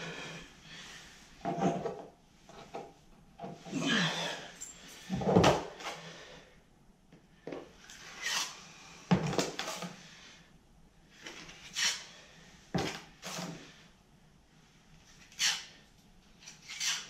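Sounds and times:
drywall knife scraping mud pan: 15.3s - 15.8s, 16.5s - 17.0s.

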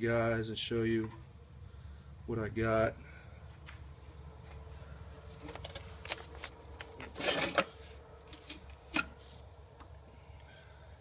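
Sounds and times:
faint steady low hum: 0.0s - 11.0s
hands handling metal parts: 5.2s - 9.9s.

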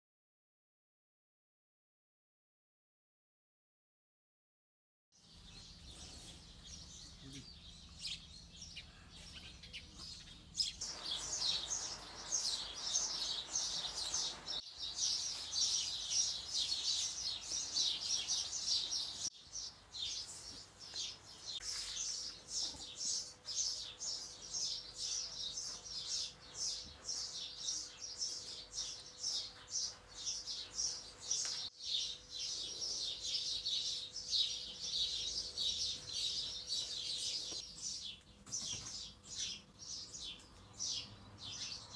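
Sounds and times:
small birds chirping: 5.2s - 41.9s
faint steady hum: 5.3s - 38.4s.

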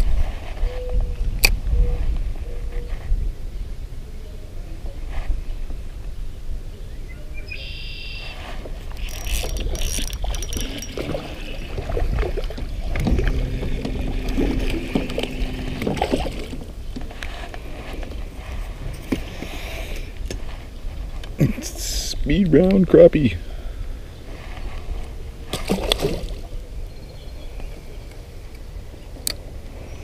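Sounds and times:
tackle clicks and knocks: 9.0s - 11.2s
fishing reel cranking: 9.0s - 11.9s
steady low rumble: 10.4s - 19.0s.

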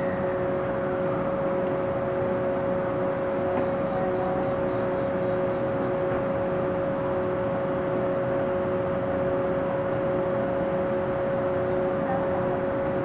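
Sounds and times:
train equipment hum and whine: 0.0s - 13.0s.

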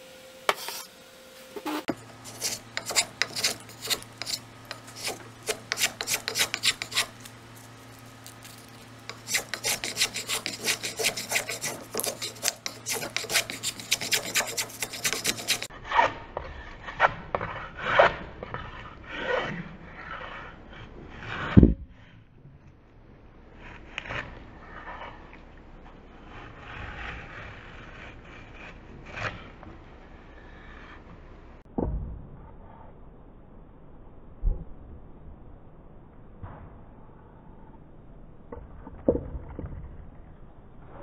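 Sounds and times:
hand plane shaving wood: 1.8s - 7.3s, 8.4s - 16.1s.

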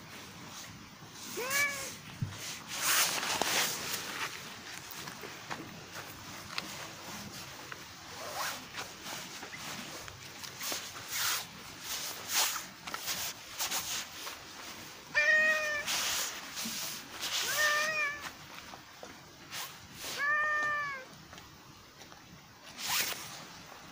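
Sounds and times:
cat meowing: 1.3s - 2.0s, 15.1s - 15.9s, 17.4s - 18.3s, 20.1s - 21.1s.

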